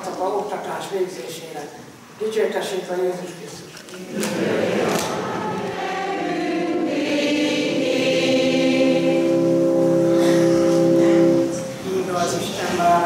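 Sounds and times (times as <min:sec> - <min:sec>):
congregation singing: 0:03.9 - 0:13.0.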